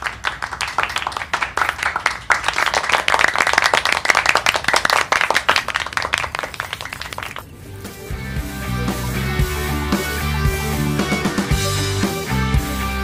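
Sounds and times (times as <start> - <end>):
applause: 0.0 - 7.5.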